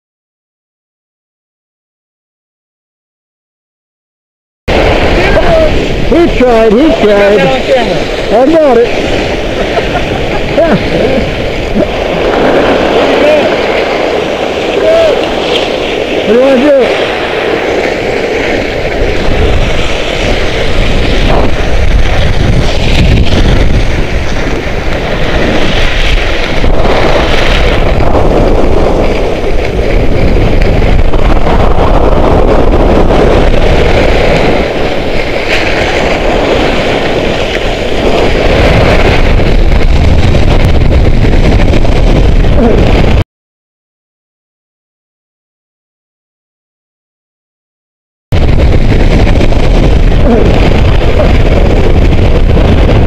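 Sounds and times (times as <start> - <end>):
skis hissing over snow: 4.7 - 40.6
wind buffeting microphone: 4.7 - 43.2, 48.3 - 53.0.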